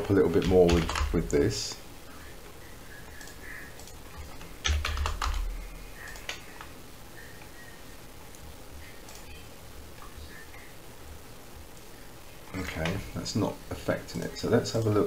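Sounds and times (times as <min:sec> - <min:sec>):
keyboard typing: 0:00.0 - 0:01.5, 0:03.0 - 0:06.8.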